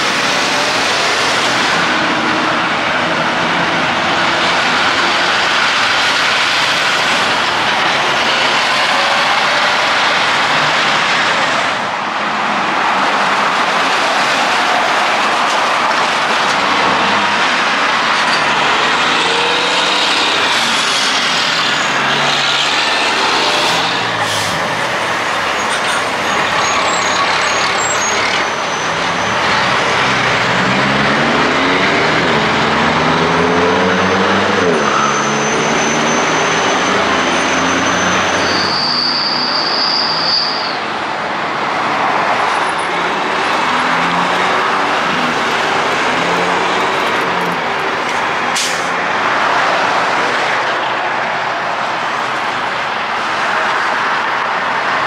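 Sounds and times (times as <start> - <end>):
heavy traffic: 0.0 - 55.0
truck diesel engines accelerating: 0.0 - 55.0
high squeal: 18.3 - 29.9, 34.0 - 41.0.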